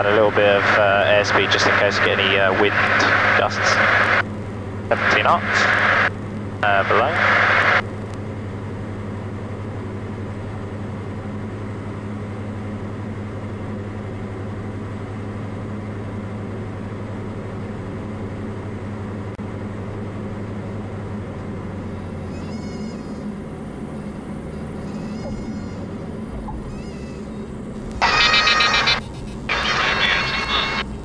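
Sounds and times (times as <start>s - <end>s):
propeller aircraft engine running: 0.0s - 31.0s
high wavering squeal: 26.6s - 31.0s.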